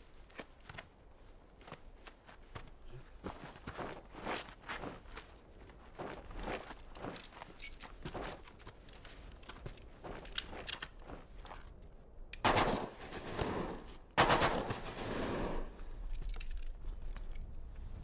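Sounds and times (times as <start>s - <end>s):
footsteps on gravel: 3.2s - 11.7s
rifle shots: 12.4s - 15.7s.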